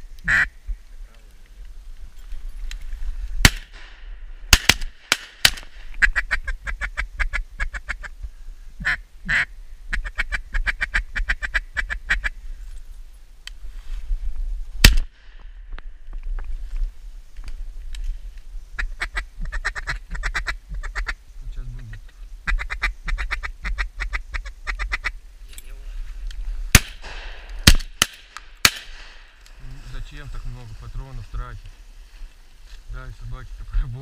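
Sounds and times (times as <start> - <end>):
loud sharp bangs: 3.4 - 5.8, 26.7 - 29.3
duck call quacks and chuckles: 8.8 - 12.3, 18.8 - 21.2.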